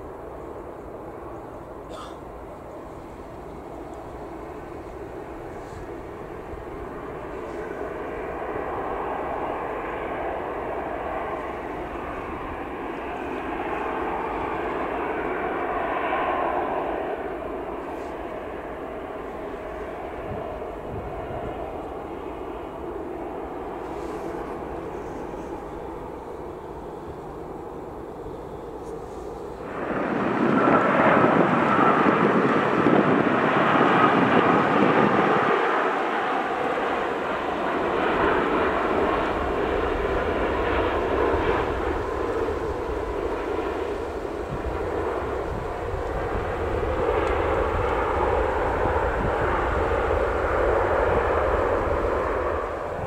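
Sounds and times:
jet engines taxiing: 0.0s - 53.0s.

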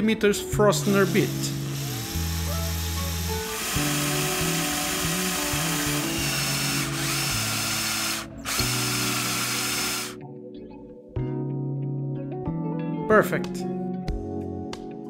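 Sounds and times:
background music: 0.0s - 15.0s
power drill boring into wood: 0.9s - 10.2s.

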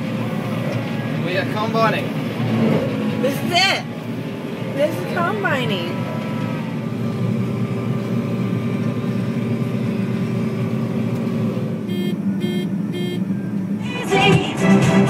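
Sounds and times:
combine harvester droning: 0.0s - 15.0s
short electronic beeps: 11.9s - 13.4s.

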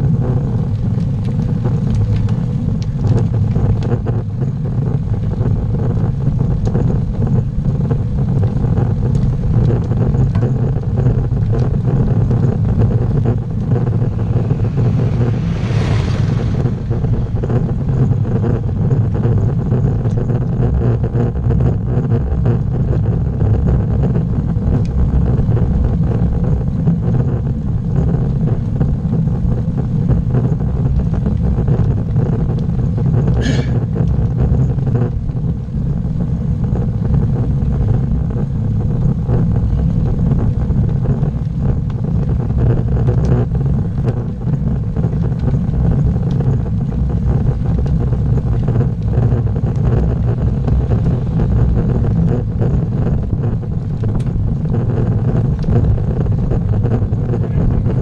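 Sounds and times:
tyre road and wind rumble: 0.0s - 58.0s.

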